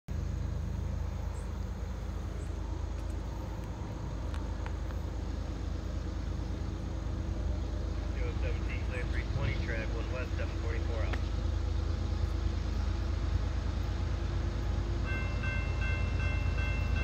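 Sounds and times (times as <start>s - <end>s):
diesel locomotive engines rumbling: 0.1s - 17.0s
faint clicks: 2.9s - 5.1s.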